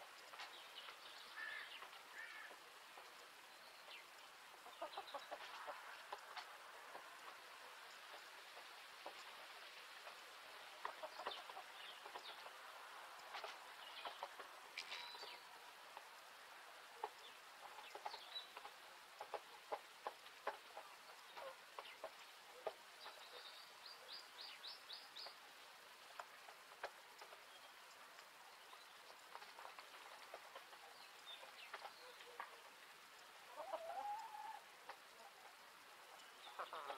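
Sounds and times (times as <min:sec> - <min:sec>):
hens clucking: 0:04.5 - 0:15.3, 0:17.0 - 0:23.3, 0:29.0 - 0:36.9
light ticks and taps: 0:26.1 - 0:33.3.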